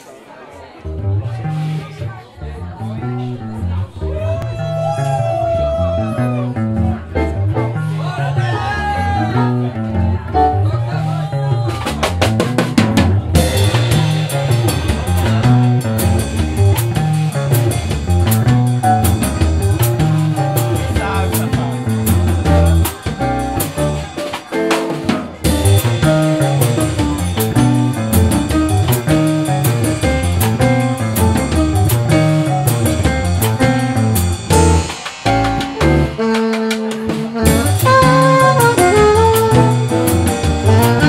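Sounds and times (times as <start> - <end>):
electric bass line: 0.9 - 24.2, 25.4 - 41.0
drum kit with cymbals: 10.3 - 41.0.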